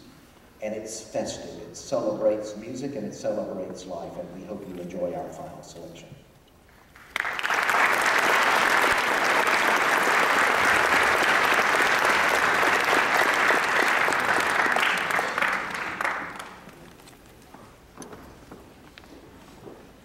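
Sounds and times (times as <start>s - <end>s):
audience applauding: 6.9s - 17.1s.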